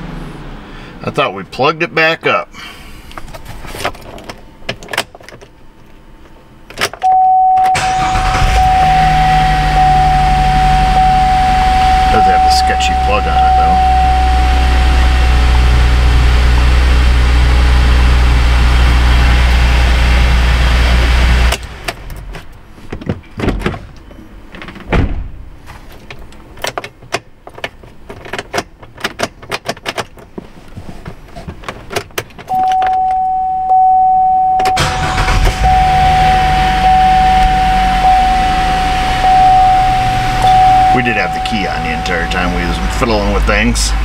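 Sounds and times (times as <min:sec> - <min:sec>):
car engine and cooling fans running: 0:00.0 - 0:44.0
electronic dashboard chime: 0:07.0 - 0:16.0, 0:32.5 - 0:43.7.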